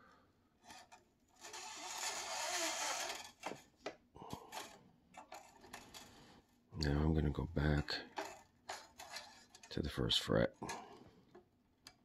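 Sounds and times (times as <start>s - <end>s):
guitar string scraping through post: 0.6s - 3.7s, 7.6s - 9.8s.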